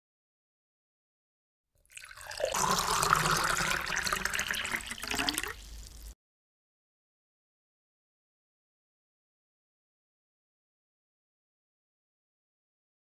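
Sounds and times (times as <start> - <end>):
milk pouring into metal pot: 1.8 - 6.2.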